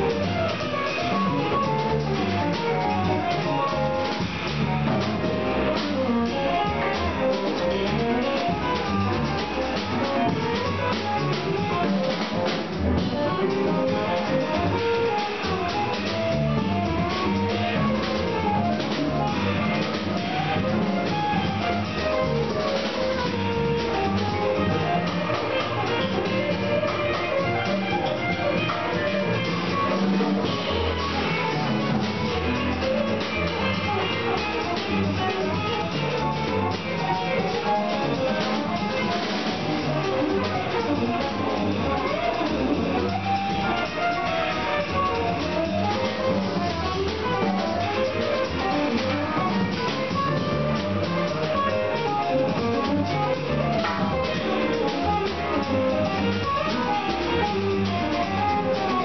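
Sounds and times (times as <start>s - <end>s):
double bass: 0.0s - 59.0s
drum kit: 0.0s - 59.0s
stage piano: 0.0s - 59.0s
electric guitar melody: 23.0s - 59.0s.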